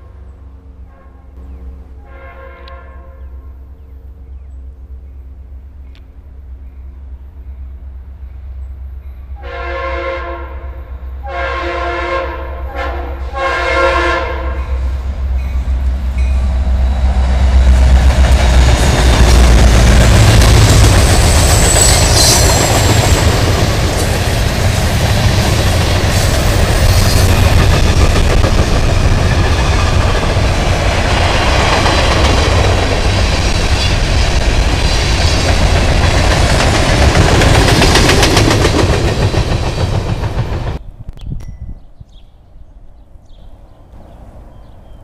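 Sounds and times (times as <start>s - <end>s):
train wheels clacking on rails: 15.4s - 40.8s
wheel squeal: 21.2s - 23.0s.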